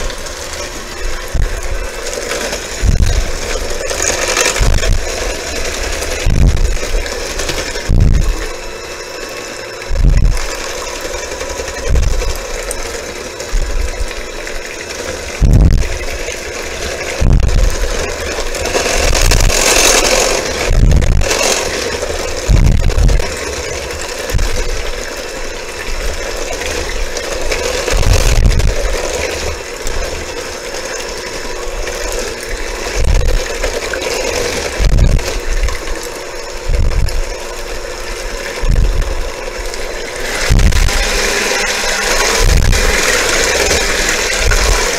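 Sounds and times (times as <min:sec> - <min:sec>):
electric hand mixer whirring: 0:00.0 - 0:44.9
low thumps: 0:02.8 - 0:03.6, 0:04.2 - 0:05.3, 0:06.0 - 0:08.5, 0:09.9 - 0:10.6, 0:15.4 - 0:16.1, 0:17.2 - 0:17.9, 0:20.6 - 0:21.3, 0:22.4 - 0:23.5, 0:36.6 - 0:37.4, 0:38.6 - 0:39.3, 0:40.4 - 0:41.0.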